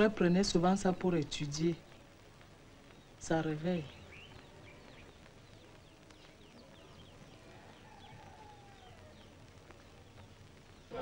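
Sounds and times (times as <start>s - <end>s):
background hiss: 0.0s - 11.0s
birds chirping: 0.0s - 11.0s
longer bird call: 2.9s - 11.0s.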